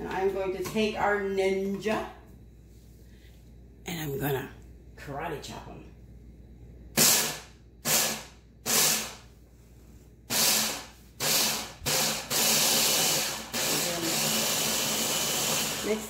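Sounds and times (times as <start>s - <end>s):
food chopper motor whirring: 10.3s - 16.0s.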